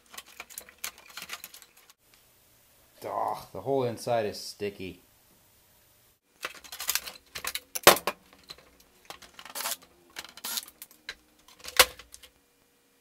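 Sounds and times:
metal computer case clattering: 6.4s - 9.6s.

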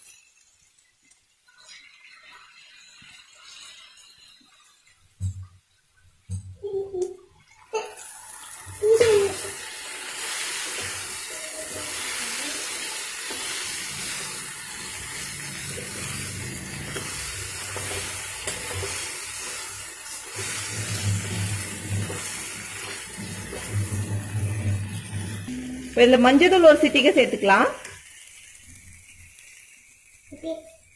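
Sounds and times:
vegetables sizzling in hot oil: 0.0s - 5.1s, 7.7s - 30.9s
spatula stirring in pan: 8.3s - 30.2s.

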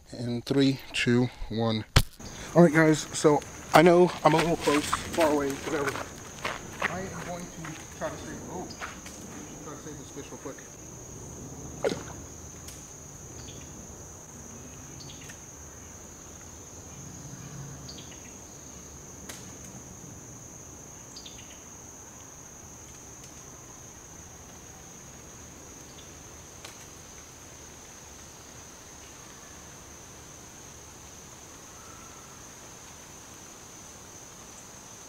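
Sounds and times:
high-pitched insect chorus: 0.0s - 35.0s.

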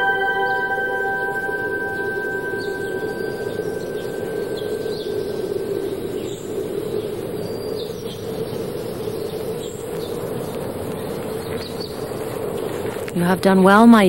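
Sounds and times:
steady droning hum: 0.0s - 7.6s.

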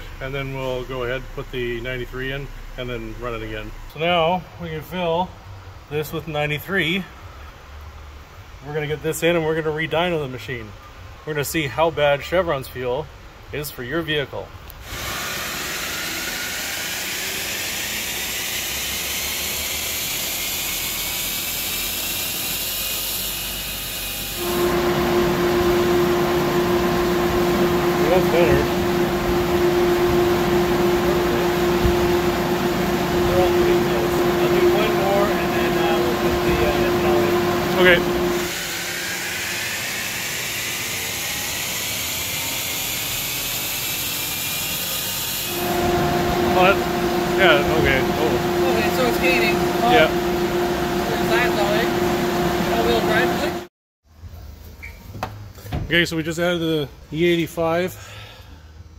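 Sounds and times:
steady hum with drone: 14.8s - 21.1s, 23.7s - 42.0s, 45.4s - 53.7s
car on dyno rushing hiss: 14.8s - 53.7s
engine at full throttle: 14.8s - 53.7s.

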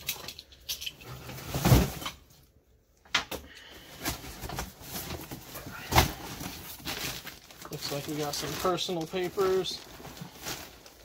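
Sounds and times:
cardboard rustling: 4.0s - 11.0s.

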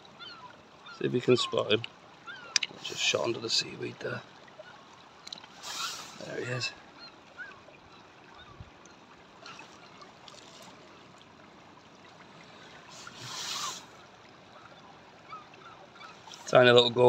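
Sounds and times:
water trickling over stones: 0.0s - 17.0s.

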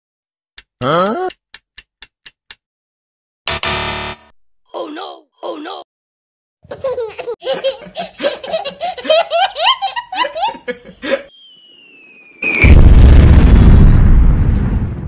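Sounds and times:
baby laughing: 6.6s - 11.2s
falling whistle: 11.3s - 12.9s
loud explosion: 11.9s - 15.0s.

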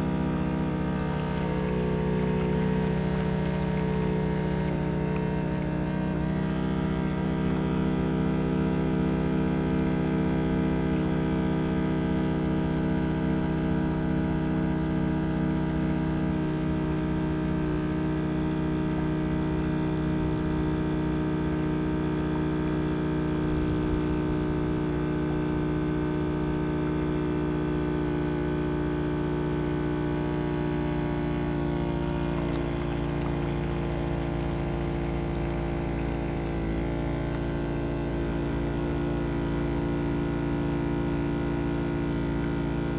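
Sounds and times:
boat engine droning: 0.0s - 42.9s.

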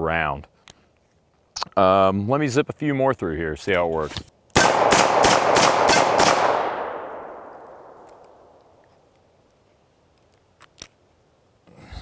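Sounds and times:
revolver shots echoing: 4.6s - 8.7s.

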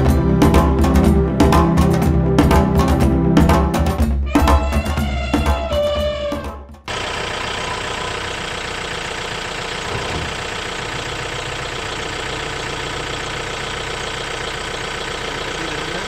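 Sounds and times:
vehicle engine idling: 6.9s - 16.0s.

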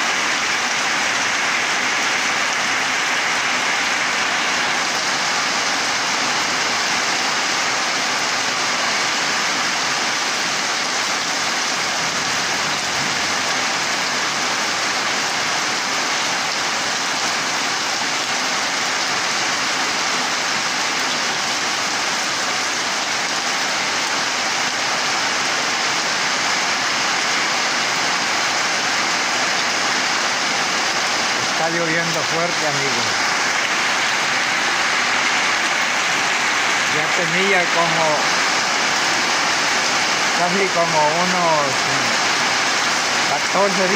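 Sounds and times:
heavy rain on foliage: 0.0s - 43.9s.

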